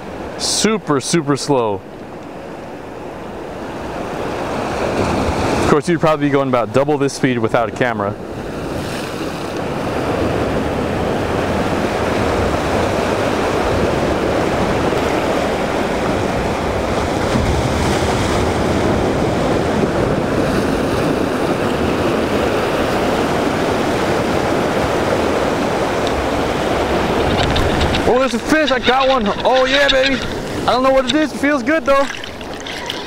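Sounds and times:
surf washing against rocks: 2.3 - 33.0
wind buffeting microphone: 9.7 - 33.0.

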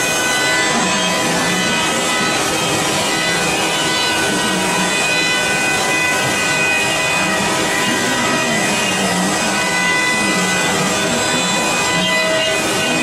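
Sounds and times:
wood router spindles whining: 0.0 - 13.0.

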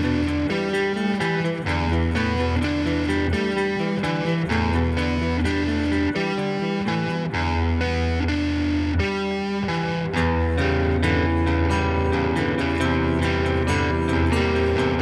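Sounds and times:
electric guitars playing chords: 0.0 - 15.0
low bass notes: 10.0 - 15.0.

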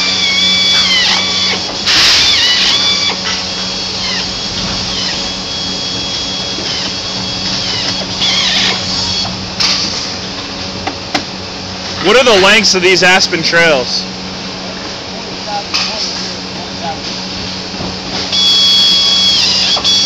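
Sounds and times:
air-powered screw gun whining: 0.0 - 10.0, 18.2 - 20.0
low factory hum: 0.0 - 20.0.

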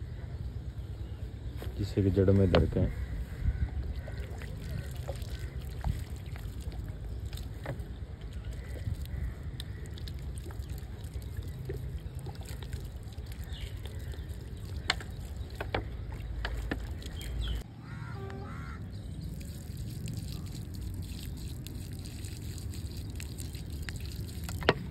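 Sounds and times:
wind rumbling on microphone: 2.5 - 17.6
water trickling onto soil: 3.2 - 17.6, 19.0 - 24.9.

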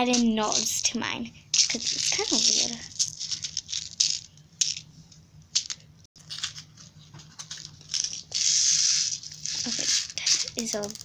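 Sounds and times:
candies pouring out rattling: 1.6 - 4.8, 7.6 - 11.0.

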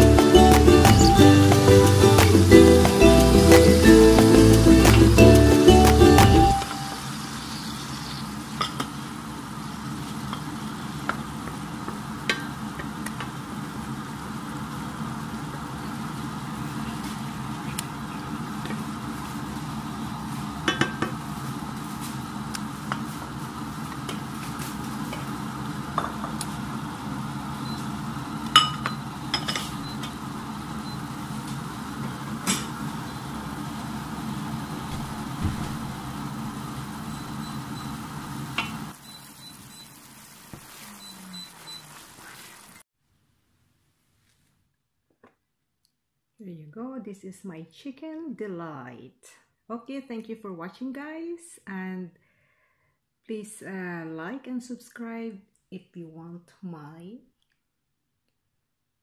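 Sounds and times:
syrup bubbling and sizzling in pan: 0.2 - 42.9.

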